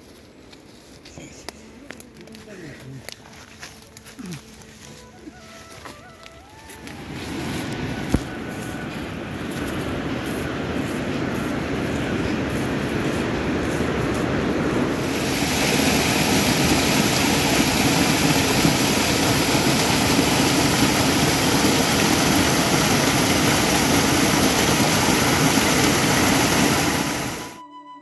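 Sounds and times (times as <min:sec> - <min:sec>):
waterfall rushing into pool: 0:14.9 - 0:27.6.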